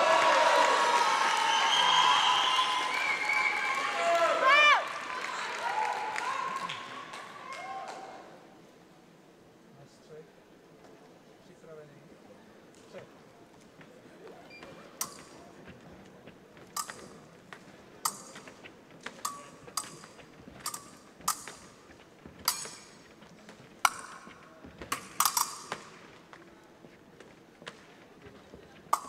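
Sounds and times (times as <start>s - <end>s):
fencing blades clashing: 15.0s - 15.5s, 16.6s - 26.3s.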